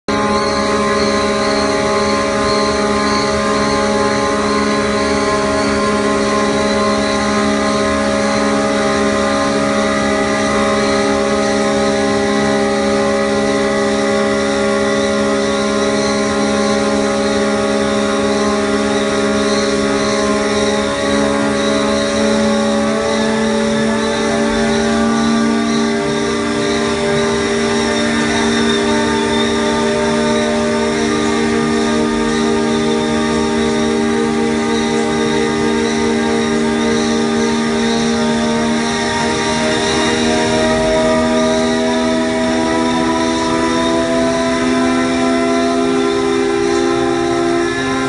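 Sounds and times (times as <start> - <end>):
loud machine drone: 0.0 - 48.0
machine whining tones: 0.0 - 48.0.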